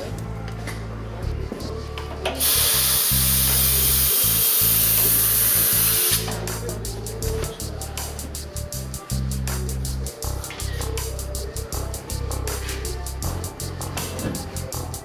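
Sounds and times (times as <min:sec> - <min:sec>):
compressed air hissing: 0:02.4 - 0:07.2.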